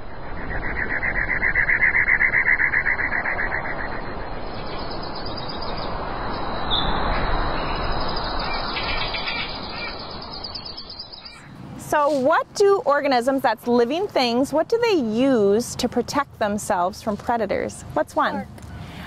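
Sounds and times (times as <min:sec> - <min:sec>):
steady rushing noise: 0:00.0 - 0:12.9
birdsong trills and chirps: 0:00.2 - 0:12.0.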